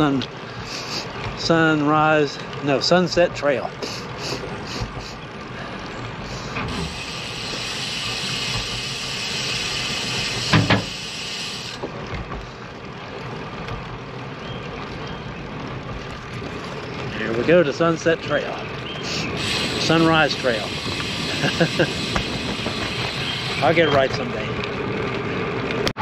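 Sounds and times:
steady hiss: 0:00.0 - 0:03.2, 0:03.8 - 0:05.6, 0:06.2 - 0:12.6, 0:17.1 - 0:24.5
bike tyre rumble: 0:00.0 - 0:26.0
wind: 0:00.0 - 0:26.0
thump: 0:10.5 - 0:10.9.

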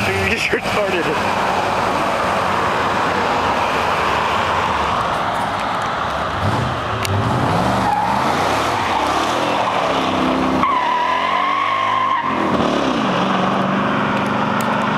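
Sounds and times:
tires squealing: 0:00.0 - 0:14.9
truck engine revving: 0:06.2 - 0:14.9.

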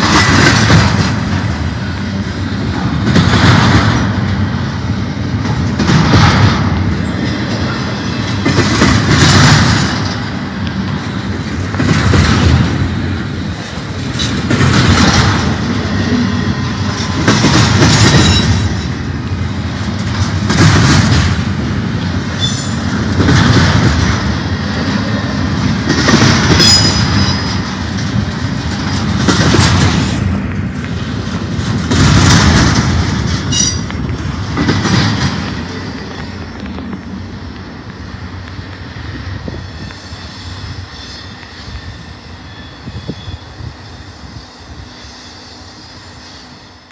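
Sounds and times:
train wheels clattering over rail joints: 0:00.0 - 0:45.5
high wheel squeals: 0:15.4 - 0:19.1, 0:22.0 - 0:23.0, 0:26.6 - 0:27.6, 0:39.4 - 0:46.9.

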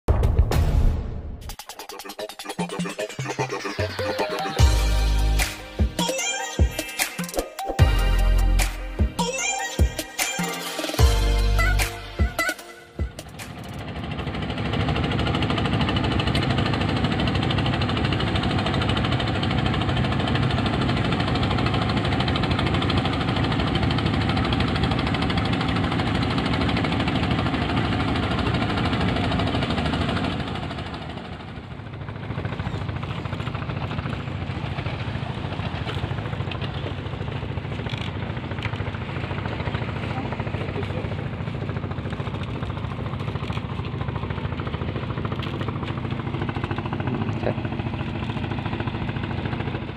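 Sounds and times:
boat engine running: 0:01.5 - 0:07.1, 0:07.8 - 0:49.9.

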